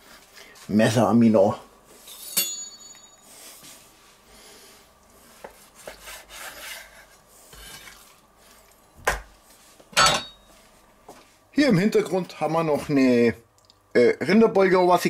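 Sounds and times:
brief metallic ring: 2.2 - 3.2.

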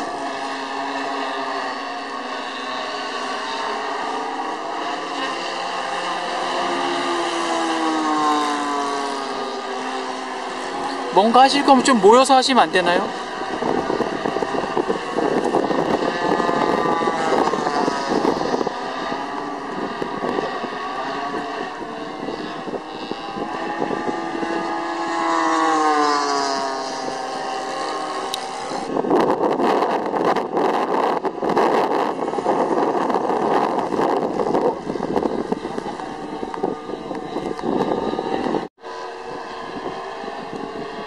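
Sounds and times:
model airplane engines: 0.0 - 41.0
wind buffeting microphone: 3.6 - 41.0.

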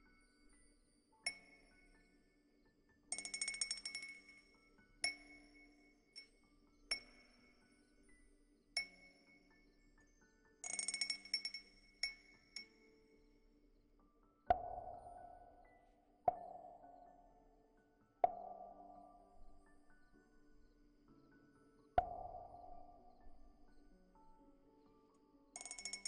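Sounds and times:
small chimes clinking: 25.6 - 26.0.

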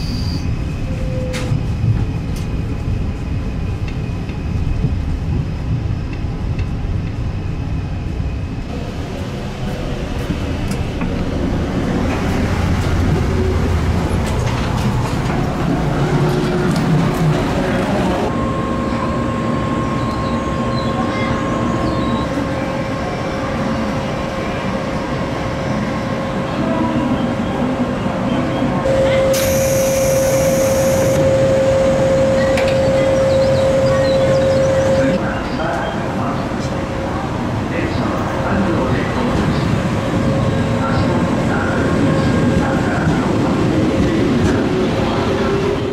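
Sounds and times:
train humming: 0.0 - 45.9
train rumble: 0.0 - 45.9
station noise: 28.0 - 37.0
hiss burst: 29.3 - 31.2.

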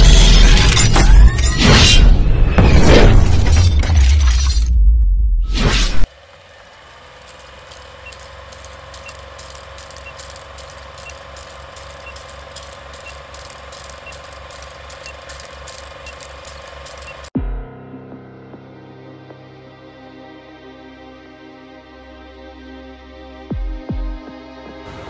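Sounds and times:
film projector whirring and clicking: 6.1 - 17.4
music: 17.4 - 25.0.

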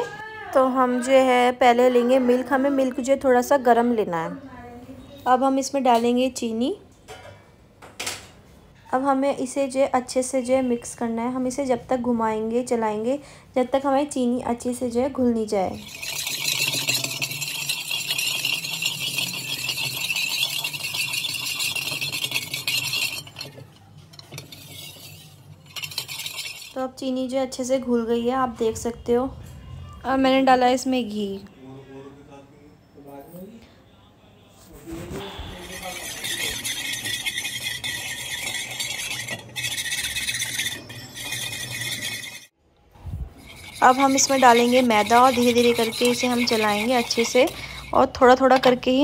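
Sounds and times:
metal spoon scraping a pot: 15.5 - 27.6, 35.0 - 42.5, 43.3 - 49.0
wire whisk rattling in metal bowl: 15.7 - 27.0, 35.5 - 42.5, 43.4 - 49.0.

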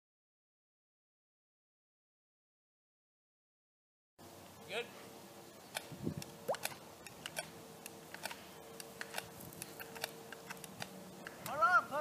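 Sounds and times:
faint steady hum: 4.2 - 12.0
faint clicks and ticks: 5.7 - 11.6.

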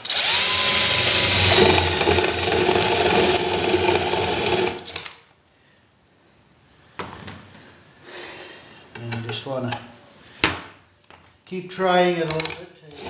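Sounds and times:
cordless drill boring through tin can: 0.0 - 5.1.

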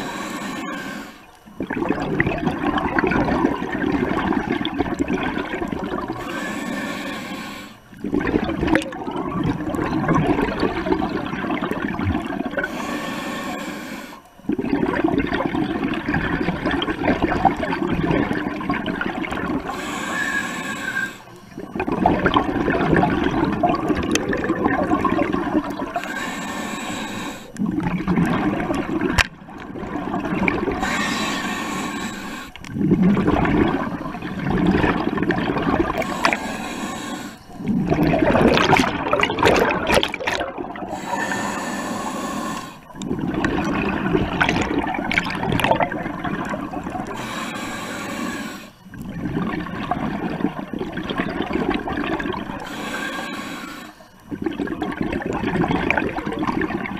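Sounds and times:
regulator breathing hiss: 0.0 - 1.4, 6.2 - 7.9, 12.6 - 14.3, 19.6 - 21.6, 26.0 - 27.6, 30.8 - 32.6, 35.9 - 37.7, 40.9 - 42.9, 47.1 - 48.8, 52.6 - 54.2
bubbling exhale: 0.0 - 56.9.

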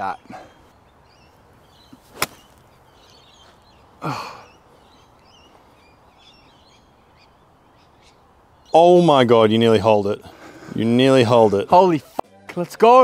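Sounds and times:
small birds chirping: 0.0 - 12.2
outdoor background noise: 0.0 - 13.0.

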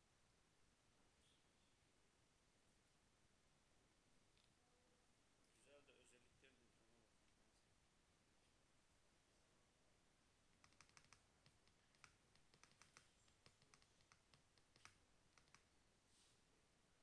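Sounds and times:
keyboard keys clicking: 10.6 - 15.6.

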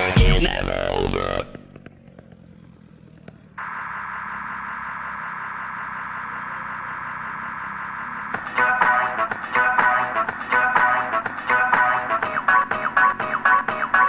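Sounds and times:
music with a beat: 0.0 - 0.7, 8.3 - 14.0
static-like hiss: 3.6 - 9.2.

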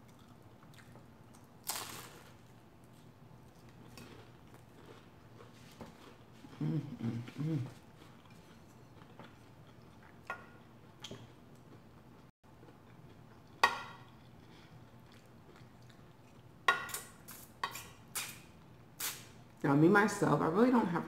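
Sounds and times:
quiet chewing: 0.0 - 1.5, 2.8 - 10.3, 11.0 - 16.5.

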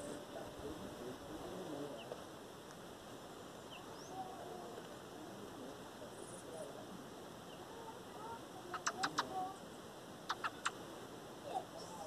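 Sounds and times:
faint high bird chirps: 3.5 - 4.6, 7.4 - 10.8.

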